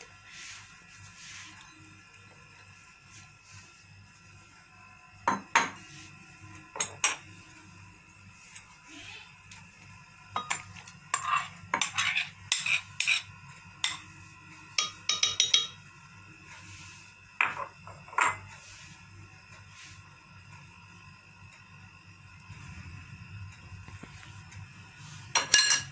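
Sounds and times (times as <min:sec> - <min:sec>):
spoon clinking against glass jar: 0:14.8 - 0:15.8, 0:25.4 - 0:25.9.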